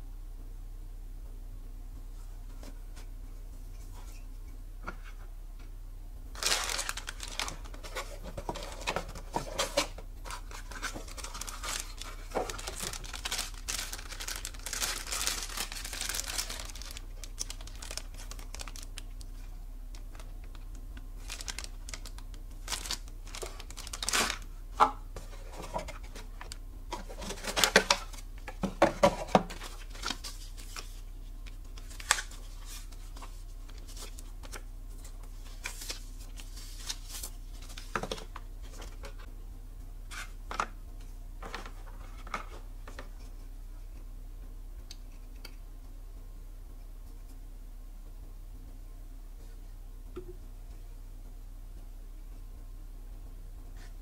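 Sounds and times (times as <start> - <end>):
plastic packaging crinkling: 6.3 - 39.2.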